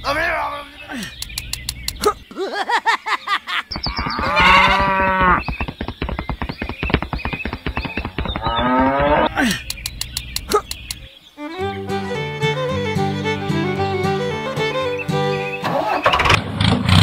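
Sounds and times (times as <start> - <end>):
fast clicks: 1.2 - 2.1, 3.7 - 11.1
cow mooing: 3.9 - 5.4, 8.4 - 9.4.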